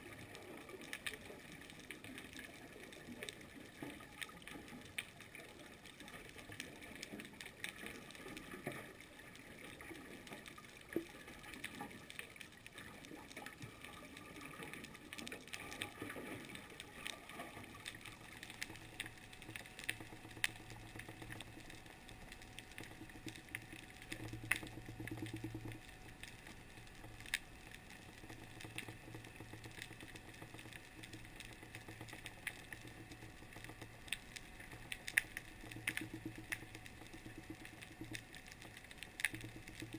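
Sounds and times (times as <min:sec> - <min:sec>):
sharp clicks and crackles: 0:00.0 - 0:39.9
low droning hum: 0:15.2 - 0:39.9.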